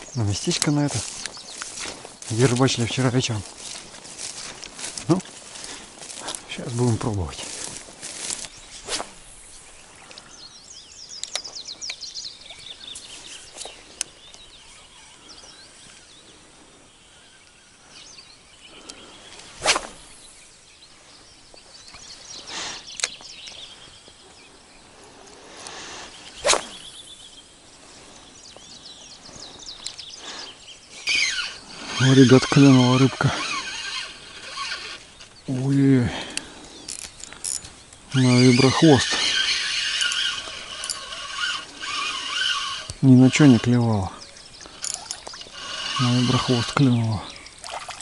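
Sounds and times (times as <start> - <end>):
small birds twittering: 0.0 - 48.0
fishing rod whooshing: 8.8 - 9.5, 19.5 - 20.2, 26.1 - 27.0.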